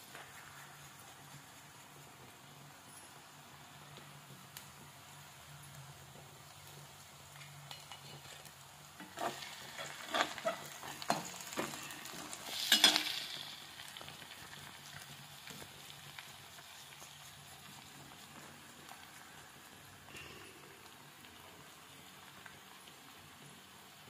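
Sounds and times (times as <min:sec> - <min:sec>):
onions sizzling in oil: 0:03.2 - 0:24.0
metal spoon scraping a pan: 0:09.0 - 0:13.6.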